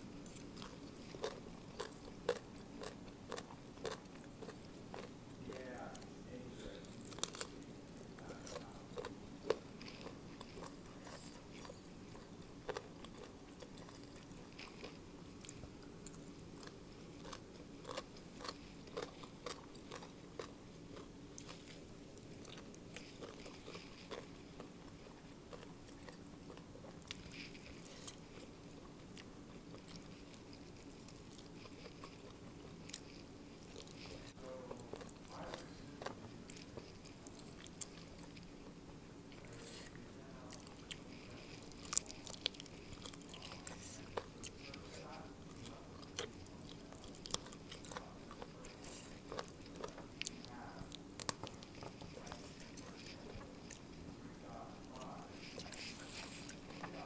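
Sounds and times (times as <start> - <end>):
person crunching and chewing food: 0.1 - 6.2, 6.8 - 57.0.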